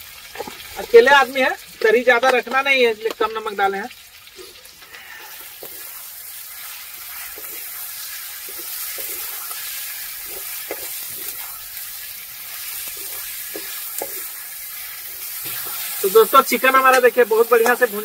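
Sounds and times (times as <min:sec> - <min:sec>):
food sizzling in a pan: 0:00.0 - 0:18.0
spoon scraping and knocking: 0:10.2 - 0:11.6.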